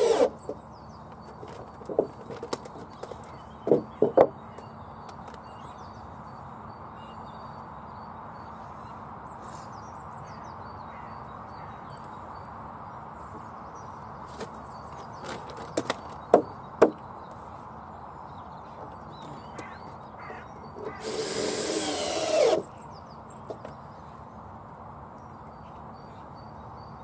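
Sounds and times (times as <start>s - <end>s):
wooden battens knocking: 1.2s - 4.6s.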